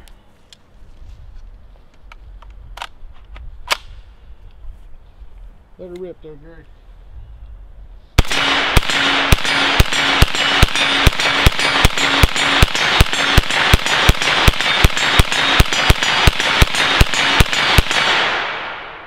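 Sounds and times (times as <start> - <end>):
rifle gunshots with echo: 8.2 - 19.0.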